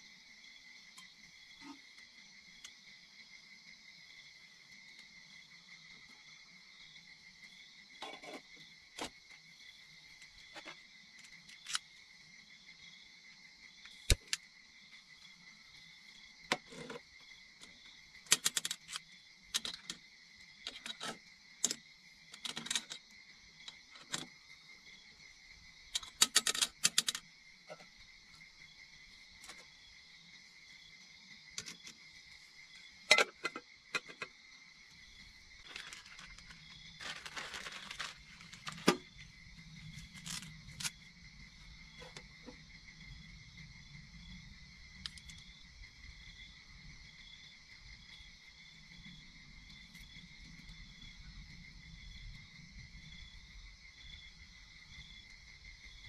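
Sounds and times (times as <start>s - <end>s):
high-pitched insect chorus: 0.0s - 56.0s
sharp clicks and clinks: 26.0s - 27.2s.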